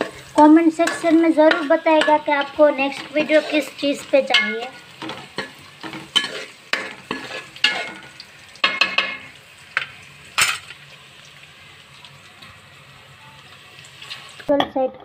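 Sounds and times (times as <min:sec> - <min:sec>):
metal spoon scraping pan: 0:00.0 - 0:10.7
spices sizzling in oil: 0:00.0 - 0:14.6.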